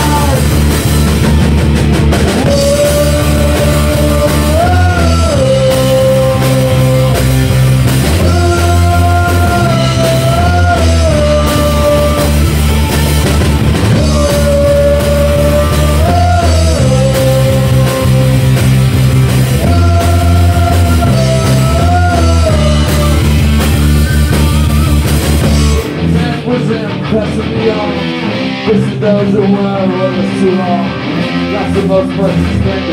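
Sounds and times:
bending melodic lead line: 0:00.0 - 0:32.9
rock band playing: 0:00.0 - 0:32.9.

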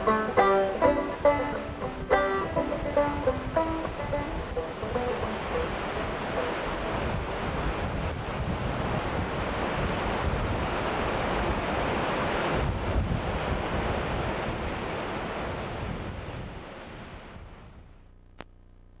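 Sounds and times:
ocean surf: 0:00.0 - 0:17.4
brief click: 0:18.3 - 0:19.0.

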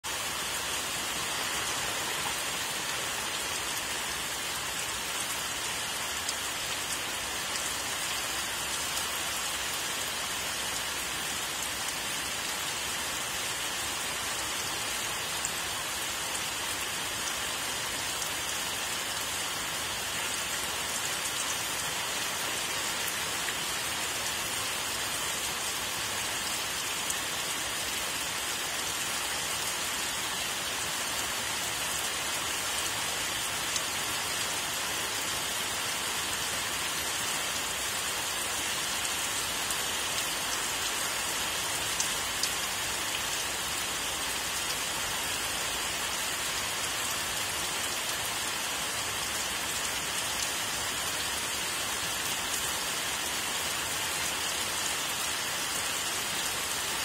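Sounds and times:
rain falling on foliage: 0:00.0 - 0:57.0.

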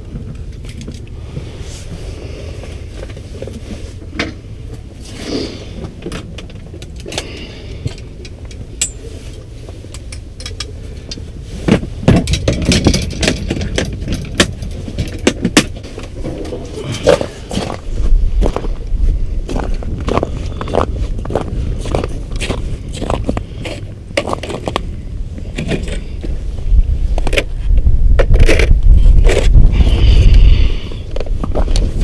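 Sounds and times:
steady low rumble: 0:00.0 - 0:32.0
fishing gear clicking and rattling: 0:05.8 - 0:17.7.

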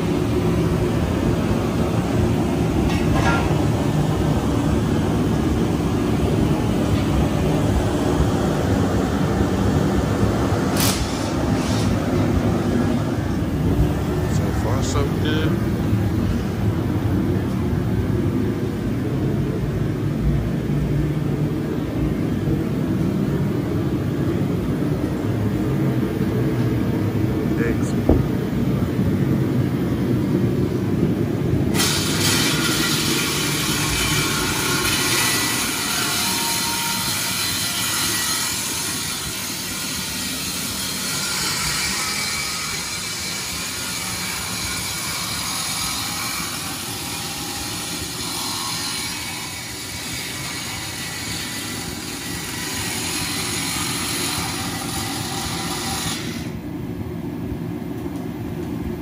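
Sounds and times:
workshop machinery rumbling: 0:00.0 - 0:38.0
loud rushing hiss: 0:03.6 - 0:17.0.

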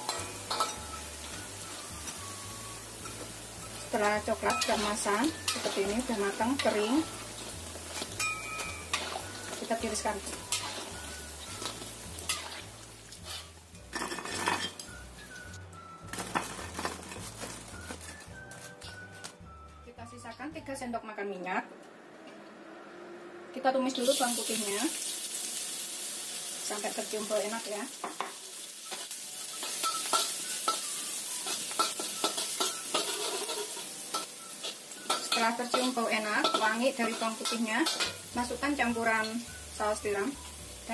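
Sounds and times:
metal strainer clinking against wok: 0:00.0 - 0:01.0, 0:04.0 - 0:07.0, 0:07.9 - 0:09.6, 0:31.4 - 0:38.2
spatula scraping and clinking wok: 0:00.0 - 0:19.2, 0:28.0 - 0:40.2
garlic sizzling in oil: 0:00.0 - 0:19.3, 0:23.9 - 0:40.9.

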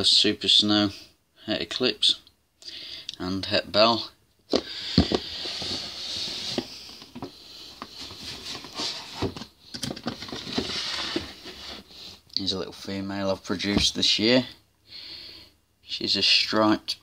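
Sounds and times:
rustling: 0:04.8 - 0:12.2.

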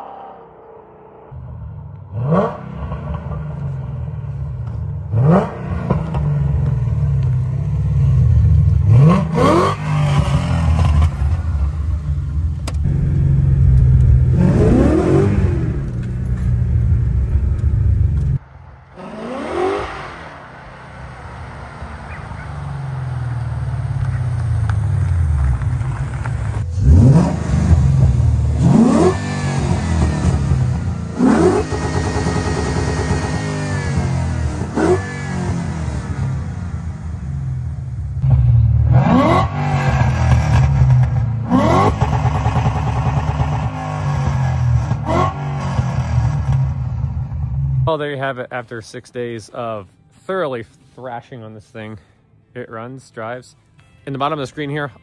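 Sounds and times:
car engine revving: 0:00.0 - 0:47.9.

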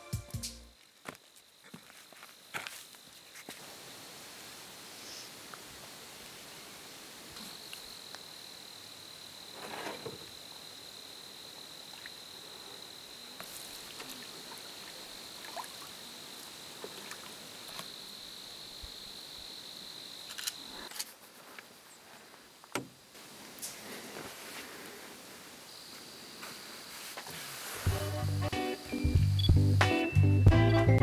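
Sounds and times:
sharp clicks: 0:20.3 - 0:21.1.

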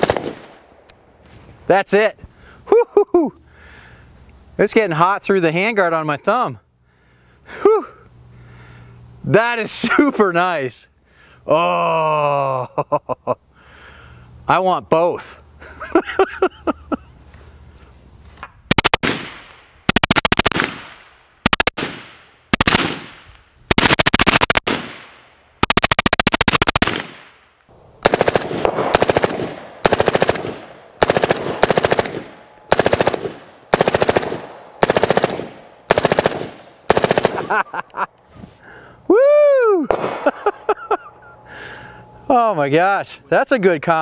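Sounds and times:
gunshot echo: 0:00.0 - 0:00.7, 0:18.9 - 0:19.5, 0:20.5 - 0:21.0, 0:28.0 - 0:37.5, 0:39.9 - 0:40.5
suppressed automatic gunfire: 0:00.0 - 0:00.7, 0:18.7 - 0:27.3, 0:28.0 - 0:37.6, 0:39.9 - 0:40.3.

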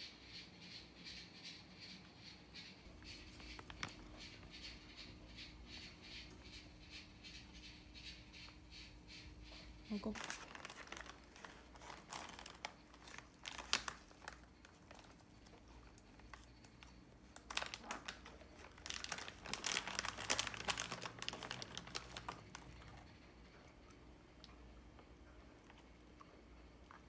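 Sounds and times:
plastic bag crinkling: 0:03.1 - 0:04.2, 0:10.0 - 0:23.1.

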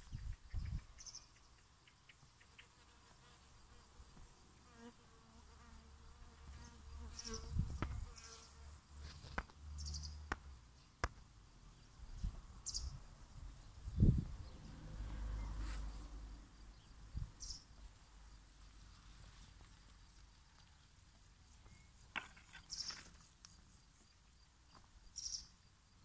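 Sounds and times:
flying insect buzzing: 0:03.7 - 0:08.8.

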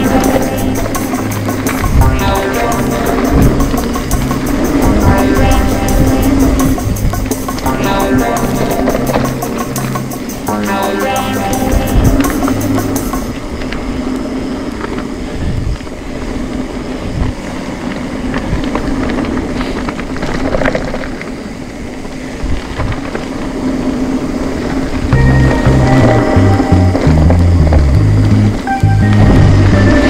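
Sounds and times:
bike clicks and rattles: 0:00.0 - 0:02.0, 0:12.1 - 0:25.1
background music: 0:00.0 - 0:13.4, 0:25.1 - 0:30.0
tyres on gravel: 0:12.1 - 0:24.9.

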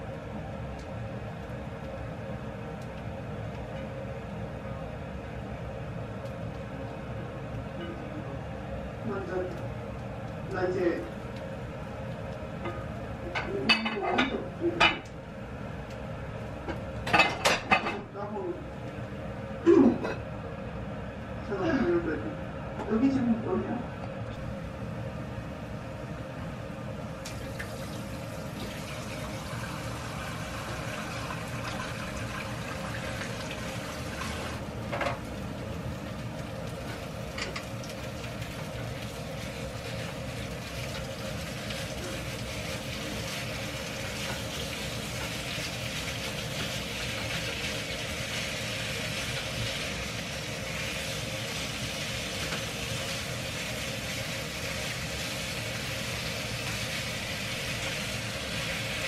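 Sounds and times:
steady low hum: 0:00.0 - 0:58.6
meat and onions sizzling in a pan: 0:35.3 - 0:59.0.

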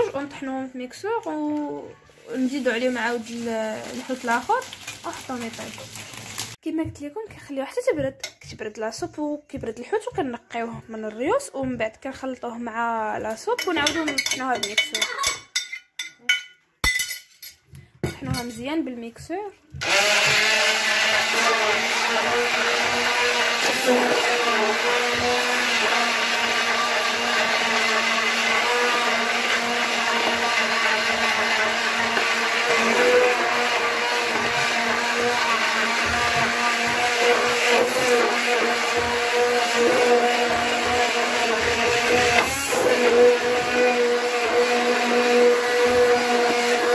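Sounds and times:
stick blender churning liquid: 0:02.4 - 0:06.6, 0:19.7 - 0:46.9.

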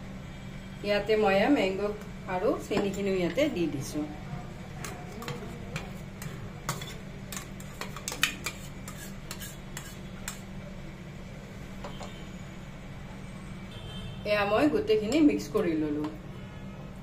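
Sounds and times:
spoon stirring batter in bowl: 0:04.8 - 0:10.6.

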